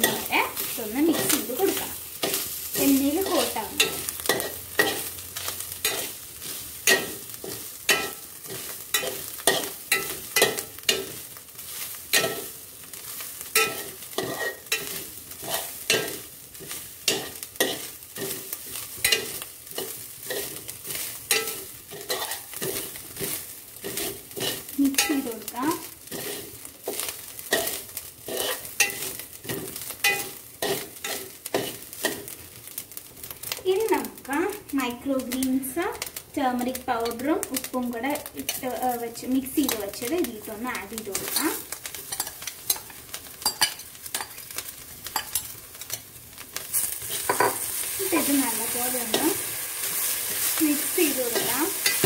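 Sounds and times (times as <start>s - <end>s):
oil sizzling: 0.0s - 52.0s
spoon scraping metal pot: 21.3s - 25.3s.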